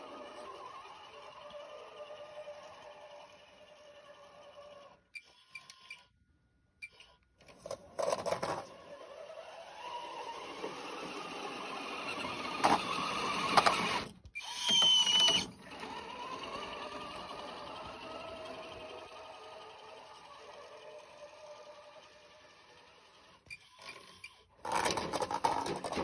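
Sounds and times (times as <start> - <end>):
toy truck motor whining: 0.0 - 6.2, 6.8 - 26.0.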